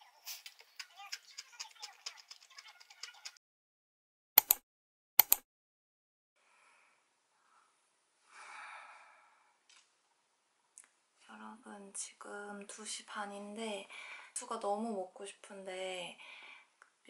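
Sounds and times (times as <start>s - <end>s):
breathy exhale: 6.4s - 9.6s.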